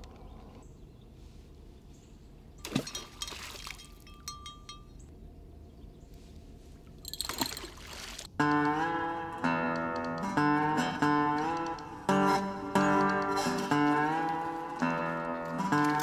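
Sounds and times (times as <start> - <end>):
faint water trickling: 2.2 - 8.4
water splashing: 2.6 - 4.4, 6.9 - 8.4, 13.4 - 16.0
acoustic guitar music: 8.4 - 16.0.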